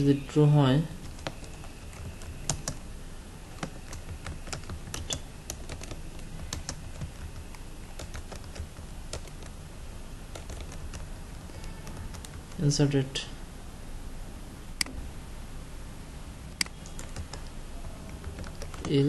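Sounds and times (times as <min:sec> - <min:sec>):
typing on computer keyboard: 0:01.0 - 0:02.8, 0:03.5 - 0:09.6, 0:10.3 - 0:12.6, 0:16.6 - 0:19.0.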